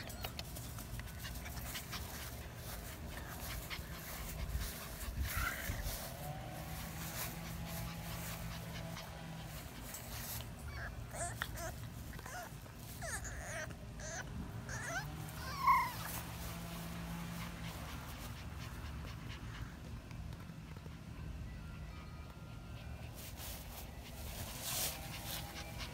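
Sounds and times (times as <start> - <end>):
puppy whimpering: 0.0 - 5.8, 10.0 - 16.2.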